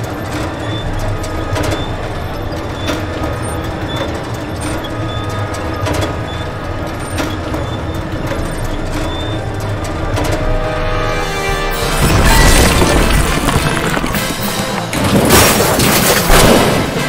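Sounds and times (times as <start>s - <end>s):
cart clanking: 0.0s - 17.0s
pushcart rolling rumble: 0.0s - 17.0s.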